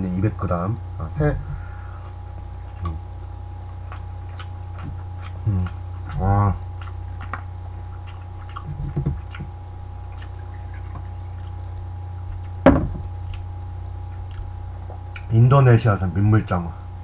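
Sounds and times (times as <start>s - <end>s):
steady low hum: 0.0s - 17.0s
bottle set down on table: 12.7s - 13.1s.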